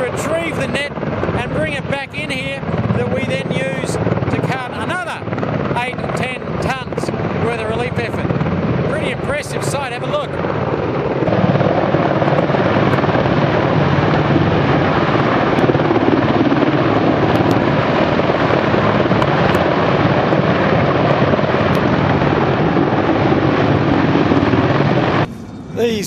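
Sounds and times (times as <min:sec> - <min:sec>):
helicopter rotor and turbine noise: 0:00.0 - 0:26.0.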